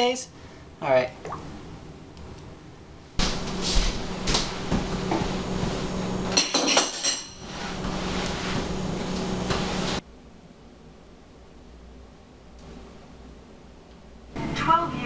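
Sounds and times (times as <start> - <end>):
steady low hum: 0.0 - 15.0
towel wiping table: 3.2 - 6.2, 7.4 - 10.0
dishes and spoon clinking: 6.3 - 7.5.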